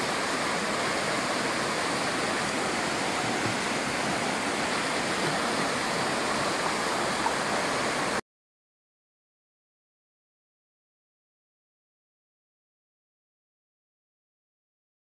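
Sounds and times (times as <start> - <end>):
waterfall splashing into pool: 0.0 - 8.2.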